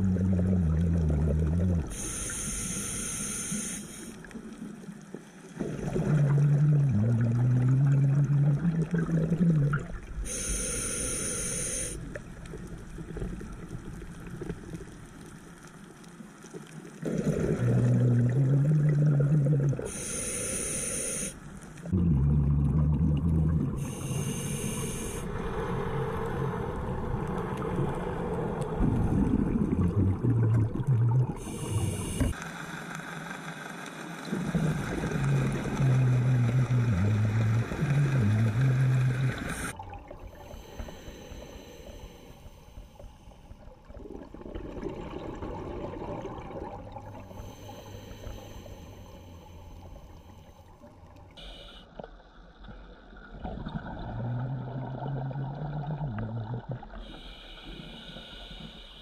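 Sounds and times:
exhaled bubbles rumbling underwater: 0.0s - 3.2s, 4.2s - 20.3s, 21.7s - 32.4s, 34.2s - 51.6s, 52.2s - 58.8s
regulator inhale hiss: 1.9s - 4.3s, 10.2s - 12.0s, 19.9s - 21.5s, 23.8s - 26.6s, 31.4s - 32.4s, 39.1s - 43.6s, 47.2s - 51.9s, 57.0s - 59.0s.

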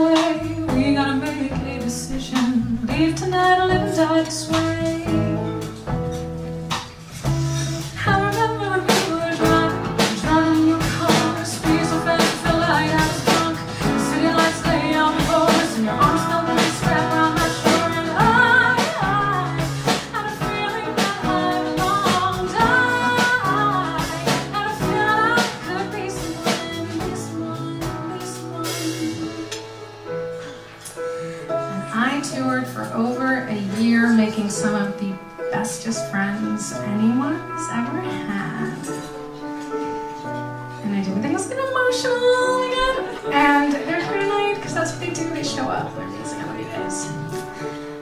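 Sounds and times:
woman singing into a microphone: 0.0s - 5.8s, 7.8s - 29.7s, 41.0s - 47.6s
drum kit beat: 0.0s - 34.8s, 41.2s - 48.0s
guitar: 0.0s - 48.0s.

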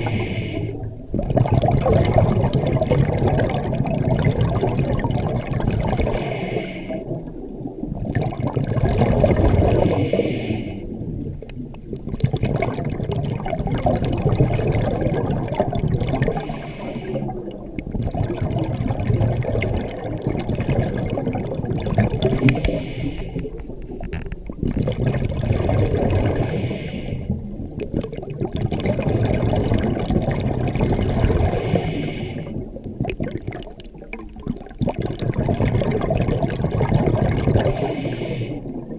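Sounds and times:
breaths through scuba regulator: 0.0s - 0.8s, 6.1s - 7.2s, 9.8s - 10.9s, 16.3s - 17.4s, 22.3s - 23.6s, 26.4s - 27.4s, 31.4s - 32.6s, 37.6s - 38.7s
exhaled bubbles rushing: 0.0s - 38.9s.

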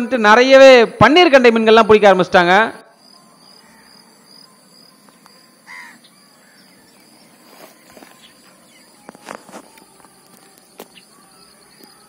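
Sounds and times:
high-pitched insect drone: 2.5s - 12.0s.

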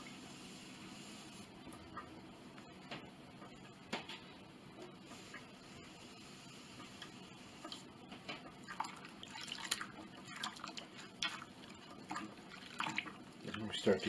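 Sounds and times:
water splashing and dripping: 8.6s - 13.8s.

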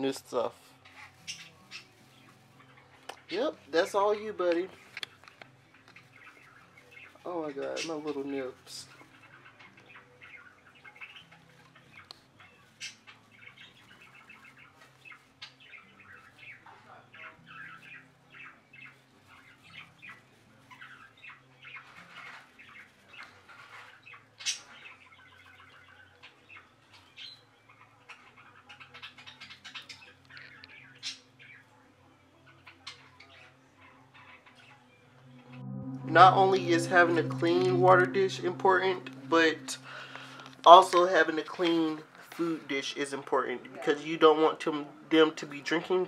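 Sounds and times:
budgerigars chirping and warbling: 0.1s - 31.7s, 32.4s - 35.0s.

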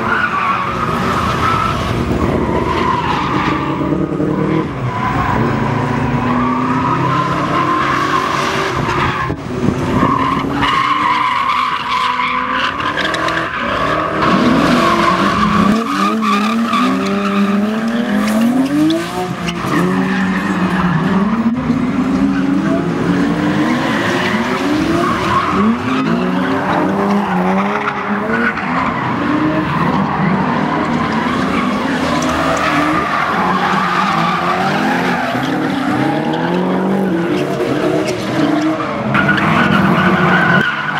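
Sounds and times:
car engines revving: 0.0s - 40.9s
tyres squealing: 23.3s - 40.9s.

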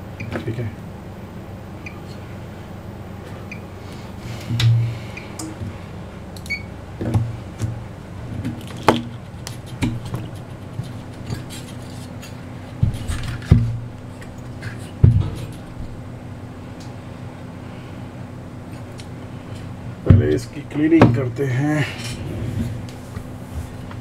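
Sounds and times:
higher hum tone: 0.0s - 8.4s
low electrical hum: 0.0s - 24.0s.

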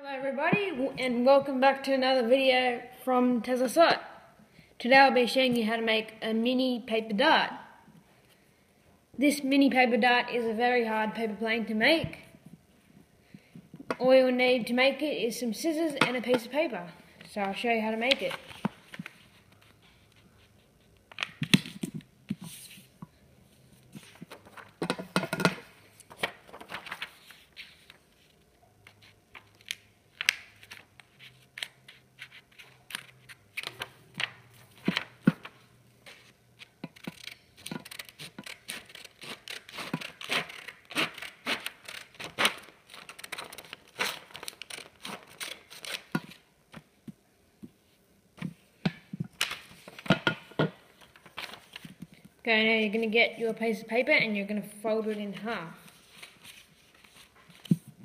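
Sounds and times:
paper crinkling: 26.1s - 46.1s
scissors snipping paper: 36.9s - 46.1s.

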